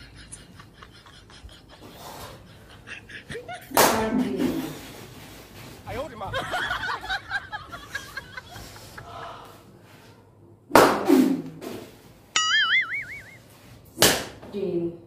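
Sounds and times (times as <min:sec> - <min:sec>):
laughter: 0:00.0 - 0:03.8, 0:06.2 - 0:09.2
stick slapping a backside: 0:10.7 - 0:11.8, 0:14.0 - 0:14.5
high warbling tone: 0:12.4 - 0:13.5.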